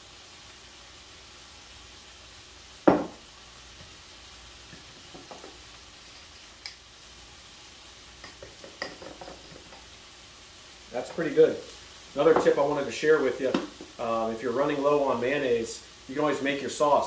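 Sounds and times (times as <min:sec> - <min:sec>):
onions sizzling in skillet: 0:00.0 - 0:17.0
loud short knock: 0:02.9 - 0:03.2.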